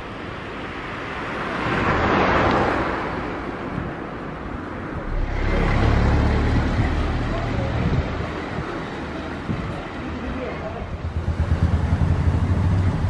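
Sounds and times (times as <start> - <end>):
low engine rumble: 3.8 - 13.0
car driving past: 5.0 - 8.6.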